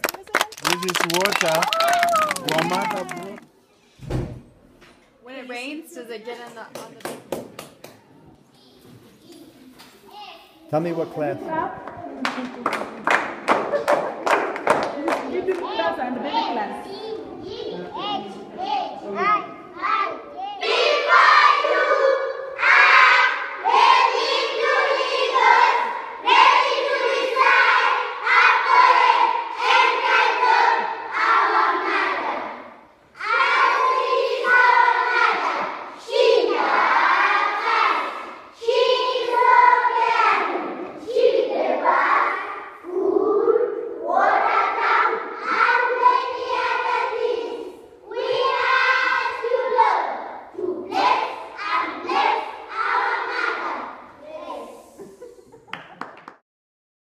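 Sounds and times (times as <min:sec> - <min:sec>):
children singing in unison: 0:20.6 - 0:55.0.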